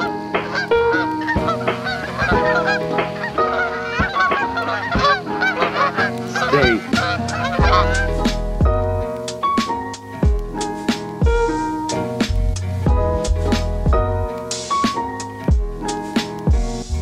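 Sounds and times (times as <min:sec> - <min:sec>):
geese honking: 0:00.0 - 0:08.4
background music with held notes: 0:00.0 - 0:17.0.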